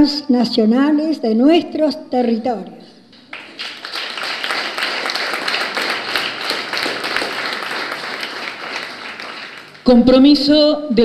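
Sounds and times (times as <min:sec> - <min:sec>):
audience applauding: 0:03.2 - 0:09.9.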